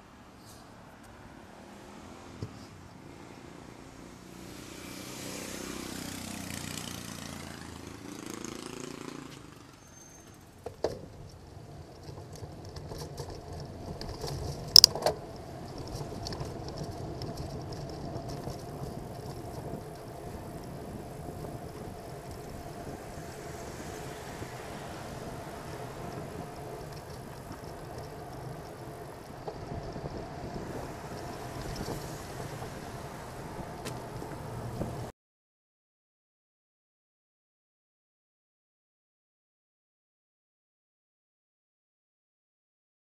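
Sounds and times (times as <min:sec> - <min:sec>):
steady traffic hum: 0:00.0 - 0:35.1
vehicle passing: 0:00.1 - 0:10.6, 0:11.4 - 0:35.1.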